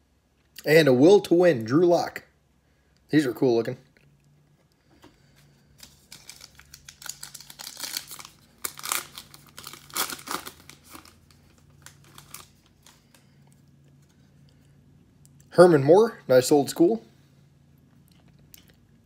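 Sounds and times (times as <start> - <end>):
foil pack tearing and crinkling: 5.8 - 13.1.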